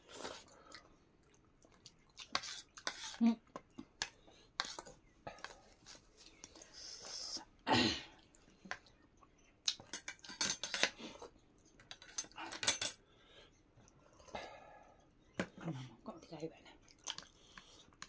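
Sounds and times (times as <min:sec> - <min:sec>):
cutlery clicking on metal plates: 0:09.8 - 0:11.0, 0:11.9 - 0:13.0.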